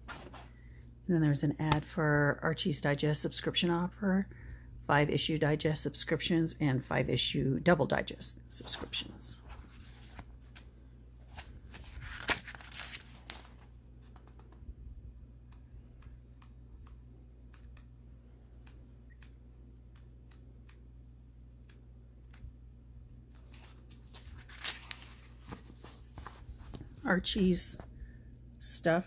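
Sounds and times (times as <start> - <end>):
paper pages rustling: 0.0 - 0.6, 8.6 - 14.6, 23.3 - 27.0
light ticks of paper: 12.2 - 14.6, 18.6 - 20.8, 21.6 - 22.5.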